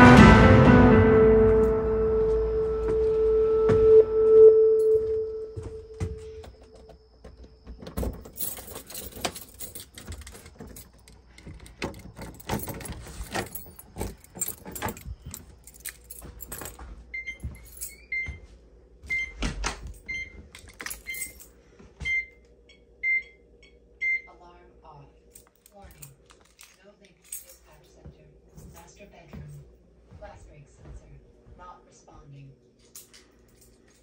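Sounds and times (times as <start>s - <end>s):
keys jangling: 7.8s - 18.1s, 19.9s - 21.6s, 25.3s - 27.9s, 32.8s - 34.0s.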